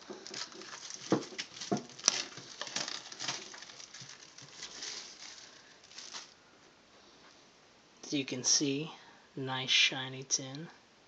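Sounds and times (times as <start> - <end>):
plastic snapping: 0.0 - 6.4
plastic wrap crinkling: 0.0 - 6.4.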